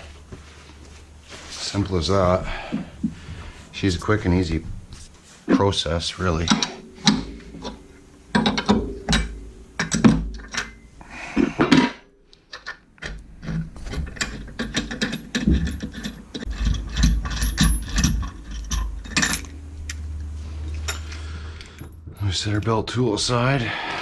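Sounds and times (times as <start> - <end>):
metal parts knocking: 6.4 - 10.8, 11.5 - 19.6.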